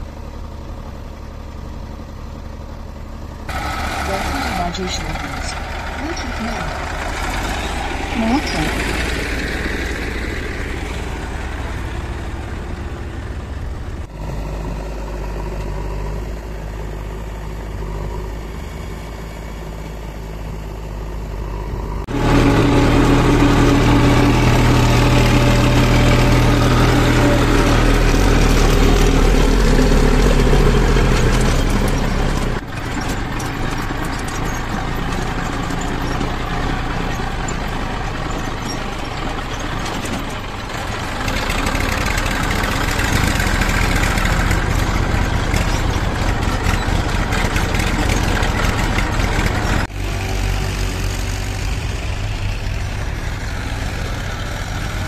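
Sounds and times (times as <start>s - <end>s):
diesel tractor engine running: 0.0s - 55.0s.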